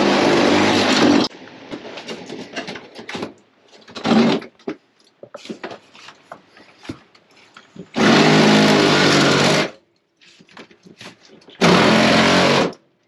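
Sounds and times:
knocks and clatter: 1.7s - 7.1s
handheld power tool running: 8.0s - 9.7s, 11.6s - 12.8s.

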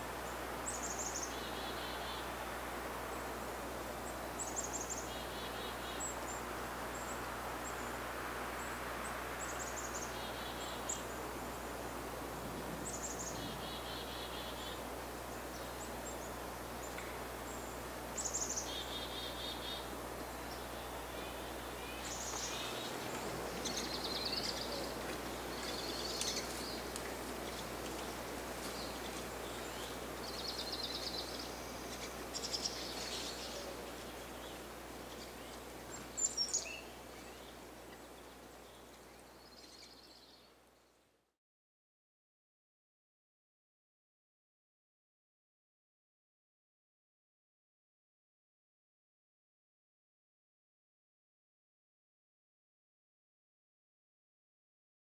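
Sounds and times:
background hiss: 0.0s - 41.3s
small birds chirping: 0.2s - 2.4s, 3.1s - 12.0s, 12.8s - 41.0s.

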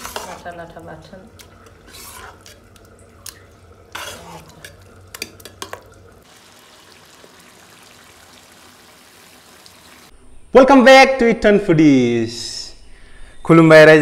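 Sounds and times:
metal spoon scraping a pot: 0.0s - 0.6s, 1.4s - 5.8s.

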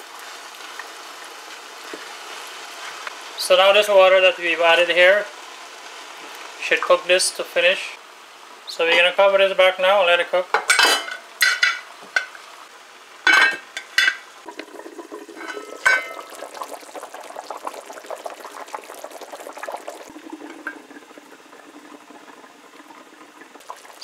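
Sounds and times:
curry bubbling in a pot: 14.4s - 24.0s.

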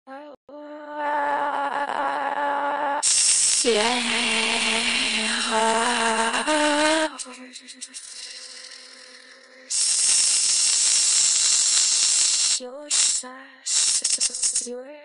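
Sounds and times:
loud steady hiss: 3.0s - 5.3s, 7.9s - 14.7s
clipped synthesized voice fragments: 3.0s - 14.7s.

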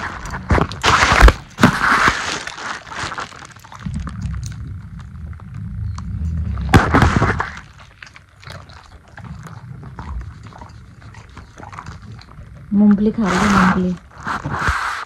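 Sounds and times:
dog chewing and crunching peanuts: 0.0s - 14.8s
low rumble: 3.6s - 14.5s.

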